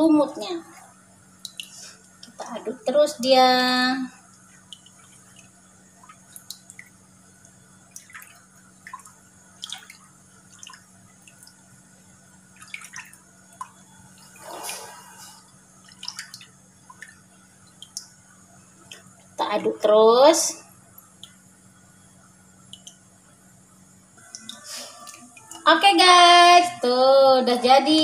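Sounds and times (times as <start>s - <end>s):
wet sloshing with drips: 0.7s - 2.6s, 4.2s - 11.8s, 12.5s - 19.4s.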